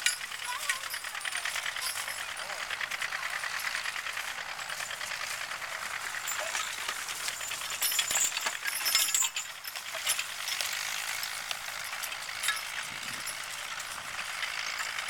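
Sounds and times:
harness chains jingling: 0.0s - 15.0s.

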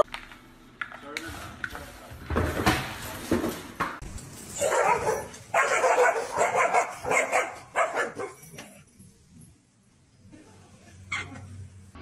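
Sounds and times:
dogs barking and yipping: 4.5s - 8.8s.

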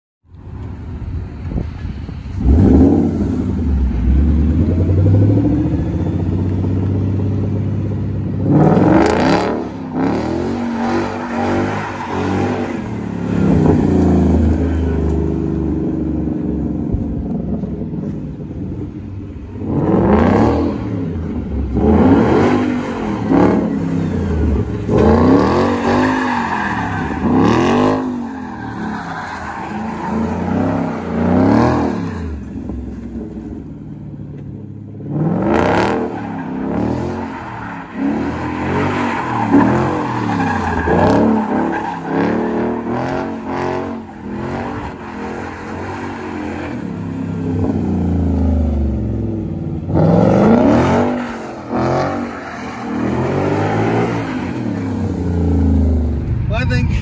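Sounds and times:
engine revving: 8.4s - 15.7s, 19.6s - 26.2s, 35.1s - 37.3s, 40.7s - 57.0s.

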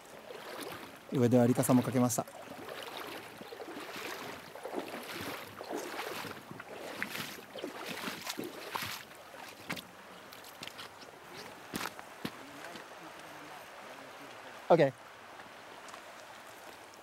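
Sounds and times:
river water over stones: 0.0s - 17.0s
water splashes: 0.0s - 17.0s.

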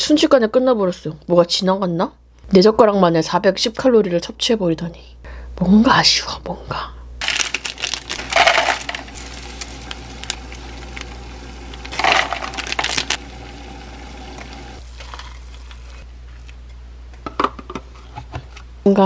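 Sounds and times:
dry flakes pattering onto noodles: 7.2s - 11.1s
packet crinkling: 7.2s - 13.8s
water poured from kettle: 7.4s - 16.0s.

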